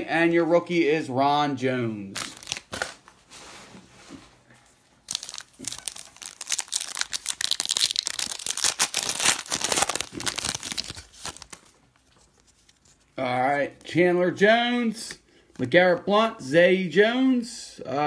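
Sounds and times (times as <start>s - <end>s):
wrapper crinkling and tearing: 2.2s - 3.1s, 5.0s - 13.1s.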